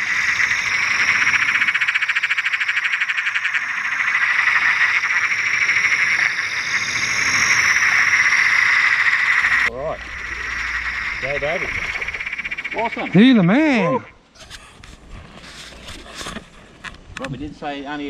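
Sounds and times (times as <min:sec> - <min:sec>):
frogs chorus trilling: 0:00.0 - 0:14.2.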